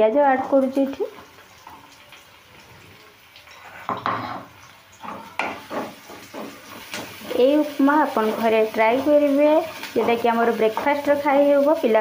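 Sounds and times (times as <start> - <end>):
faint frying hiss: 0.0 - 12.0
spatula scraping a pan: 3.4 - 11.8.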